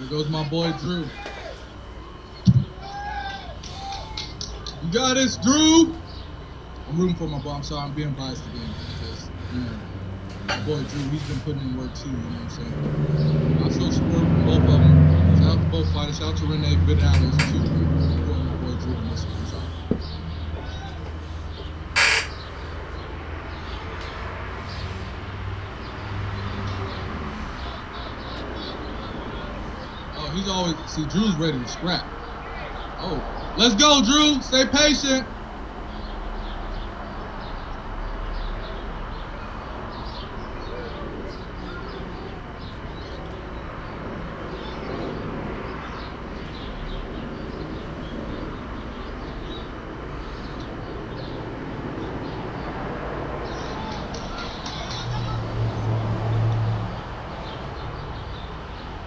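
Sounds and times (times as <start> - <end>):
steady low hum: 0.0 - 37.2
crowd murmur: 0.1 - 5.5, 53.2 - 56.5
faint shouts: 0.6 - 4.6, 20.5 - 21.1, 31.6 - 33.0
crowd noise: 53.1 - 57.1.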